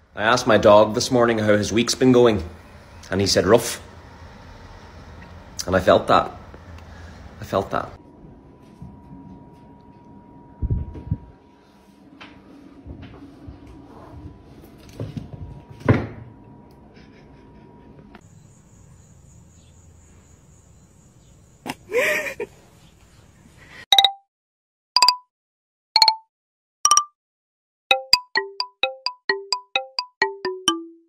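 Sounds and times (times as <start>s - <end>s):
ringtone melody of electronic notes: 23.9s - 24.2s, 25.0s - 25.3s, 26.0s - 27.2s, 27.9s - 31.0s.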